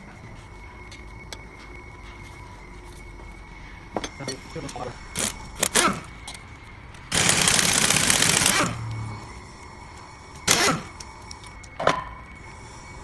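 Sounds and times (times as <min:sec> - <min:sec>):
pneumatic impact wrench hammering: 0:05.2 - 0:06.1, 0:07.1 - 0:08.8, 0:10.4 - 0:11.0.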